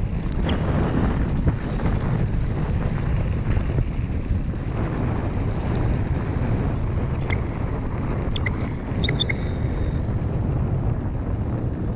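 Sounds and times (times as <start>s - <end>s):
bike tyres rumbling on dirt track: 0.0s - 11.9s
wind buffeting microphone: 0.0s - 11.9s.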